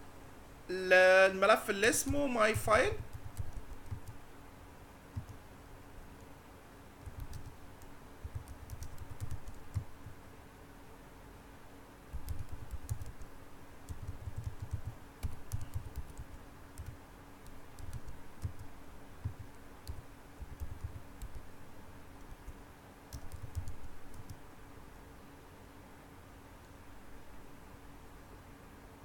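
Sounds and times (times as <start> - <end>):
faint steady hum: 0.0 - 29.0
keyboard key clicks: 23.1 - 24.4.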